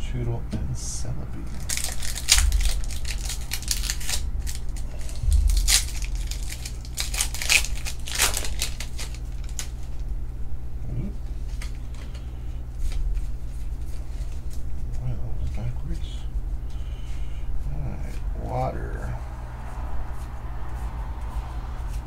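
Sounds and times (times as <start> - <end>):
foil wrapper tearing and crinkling: 1.5 - 10.0.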